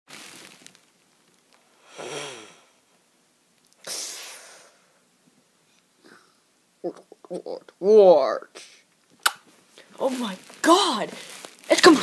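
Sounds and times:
person snoring: 0:01.8 - 0:02.8.

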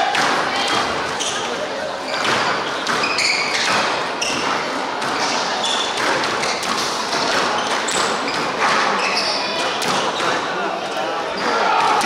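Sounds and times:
shoes squeaking on wooden floor: 0:01.1 - 0:10.4
squash ball knocks: 0:05.9 - 0:08.9.

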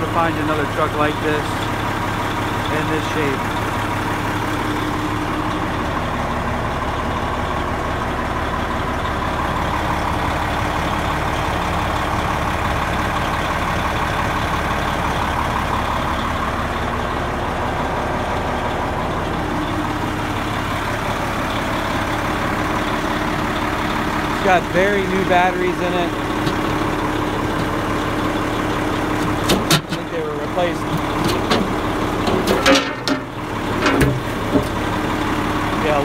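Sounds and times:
diesel truck engine idling: 0:00.0 - 0:36.0.

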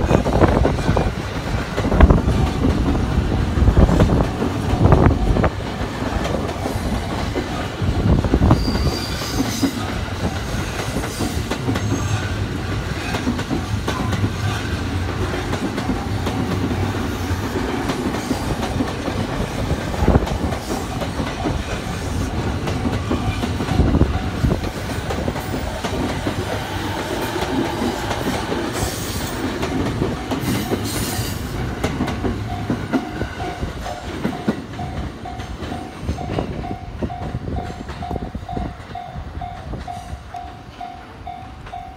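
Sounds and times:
train wheels clattering: 0:00.0 - 0:41.9.

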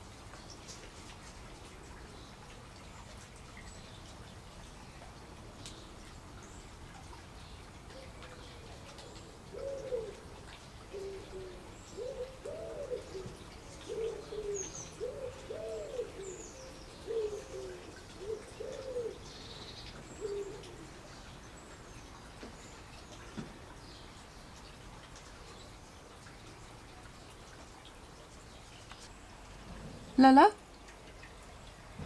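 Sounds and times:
bird cooing: 0:09.4 - 0:10.3, 0:10.9 - 0:19.6, 0:20.2 - 0:21.0.

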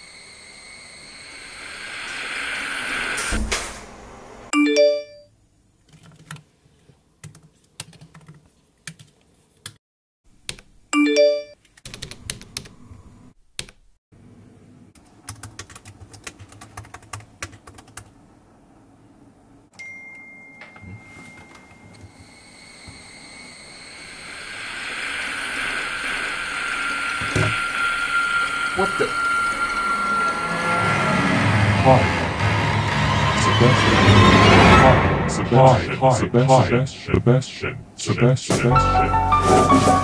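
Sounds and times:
chat notification chimes: 0:04.6 - 0:05.3, 0:11.0 - 0:11.6
typing on laptop keyboard: 0:05.9 - 0:06.4, 0:07.2 - 0:09.2, 0:11.8 - 0:12.7, 0:15.0 - 0:18.2.

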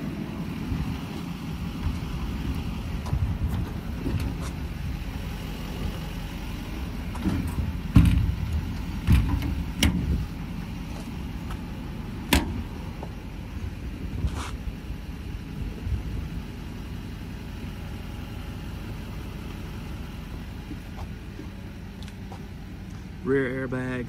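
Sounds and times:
diesel engine idling: 0:00.0 - 0:24.0
sharp clicks and knocks: 0:07.1 - 0:10.2.

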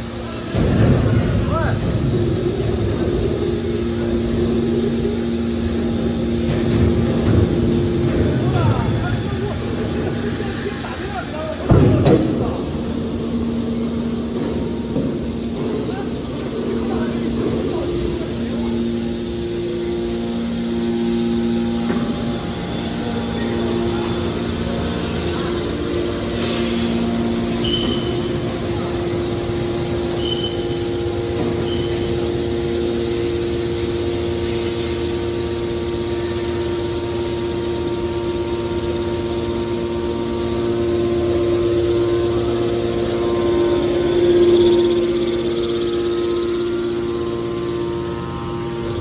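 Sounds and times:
hydraulic machine hum: 0:00.0 - 0:49.0
lower tone: 0:12.0 - 0:49.0.

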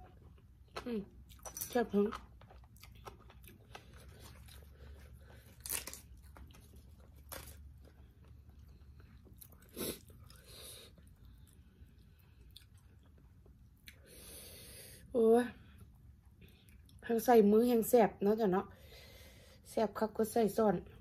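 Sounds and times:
person chewing food: 0:00.0 - 0:14.1
low steady hum: 0:00.0 - 0:21.0
mouth crunches and clicks: 0:00.3 - 0:08.0.

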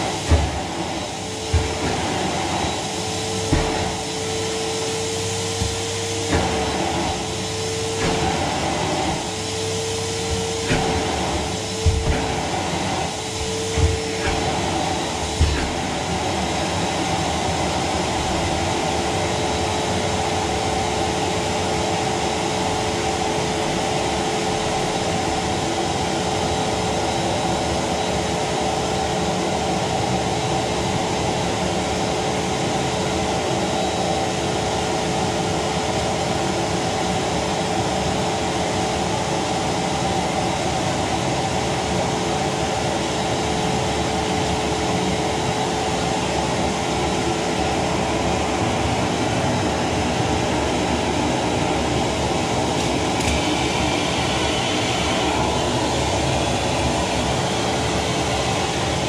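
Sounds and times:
vacuum cleaner running: 0:00.0 - 0:59.0.

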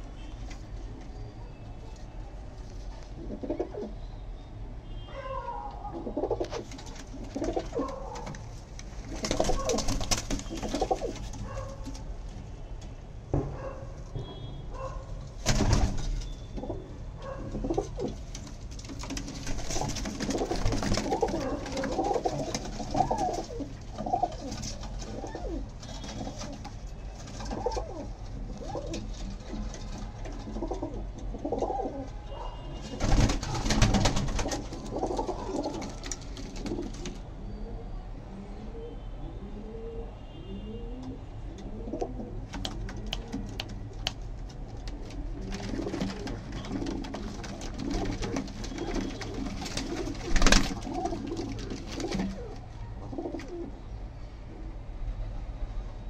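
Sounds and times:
pigeons cooing: 0:03.2 - 0:04.0, 0:05.3 - 0:08.4, 0:09.0 - 0:12.0, 0:16.6 - 0:18.3, 0:19.2 - 0:32.2, 0:32.9 - 0:43.7, 0:44.8 - 0:53.9
wings flapping: 0:06.2 - 0:12.0, 0:15.4 - 0:16.7, 0:17.6 - 0:31.8, 0:32.8 - 0:37.2, 0:42.5 - 0:53.6.

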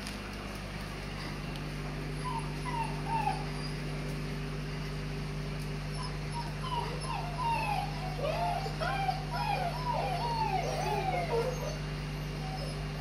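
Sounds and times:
steady low hum: 0:00.0 - 0:13.0
dogs whimpering: 0:02.1 - 0:03.9, 0:05.8 - 0:13.0.

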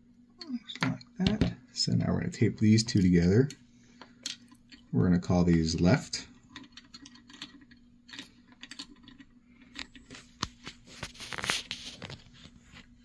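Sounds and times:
fingers handling wire and tape: 0:00.4 - 0:12.9
faint clicks and rustles: 0:06.4 - 0:13.0.

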